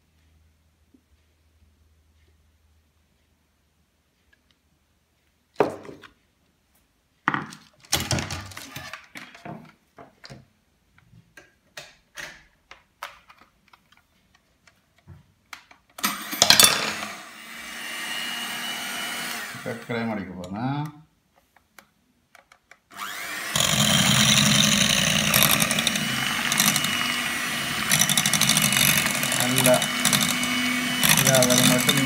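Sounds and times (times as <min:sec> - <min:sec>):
electric hand mixer whining: 0:16.0 - 0:20.2, 0:22.9 - 0:32.0.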